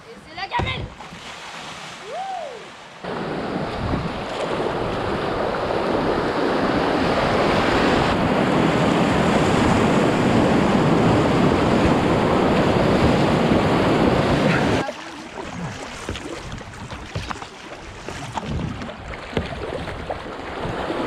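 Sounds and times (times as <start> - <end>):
whitewater rushing: 4.6 - 17.7.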